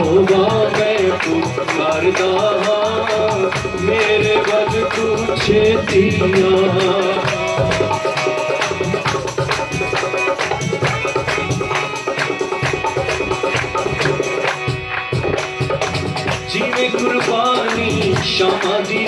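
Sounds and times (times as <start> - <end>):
hand percussion beat: 0.0 - 19.0
harmonium melody: 0.0 - 19.0
people clapping: 0.0 - 19.0
tambourine: 0.0 - 19.0.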